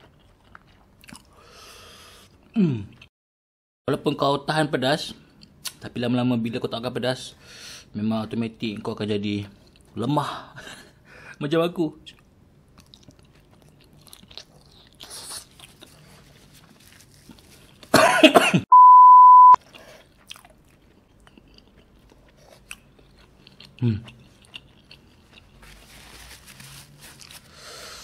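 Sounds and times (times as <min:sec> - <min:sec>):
faint chewing: 0:00.0 - 0:01.5, 0:12.1 - 0:17.9, 0:19.6 - 0:28.0
high beep test tone: 0:18.7 - 0:19.6.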